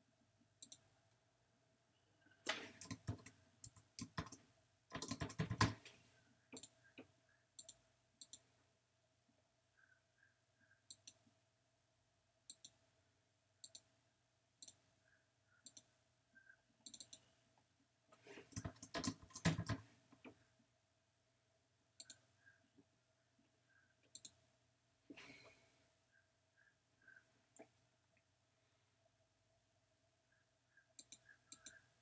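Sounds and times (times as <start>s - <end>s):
computer mouse clicks: 0.6s - 0.8s, 2.4s - 5.9s, 6.5s - 8.5s, 10.9s - 11.2s, 12.5s - 12.8s, 13.6s - 13.9s, 15.6s - 15.9s, 16.8s - 17.3s, 18.4s - 20.4s, 22.0s - 22.2s, 24.0s - 24.4s, 31.0s - 31.8s
rapid clicking and tapping: 2.7s - 5.8s, 18.5s - 19.8s.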